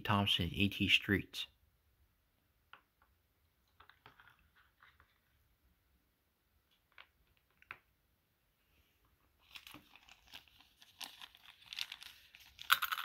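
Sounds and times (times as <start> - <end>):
plastic bag crinkling: 9.4 - 13.0.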